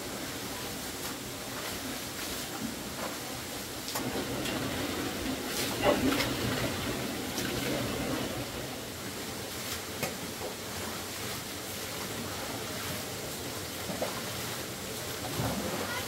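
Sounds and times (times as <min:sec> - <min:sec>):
waterfall rushing: 0:04.0 - 0:09.5.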